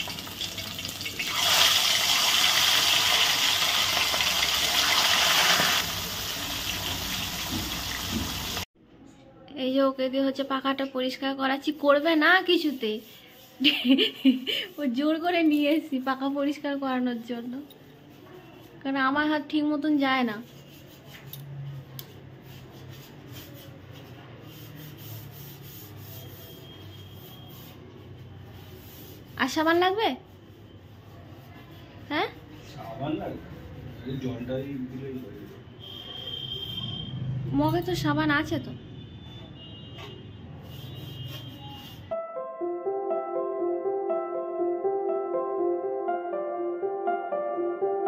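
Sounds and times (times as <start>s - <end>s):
fish sizzling in hot oil: 0.0s - 8.6s
cloth wiping fan blades: 11.8s - 16.3s, 20.4s - 29.8s.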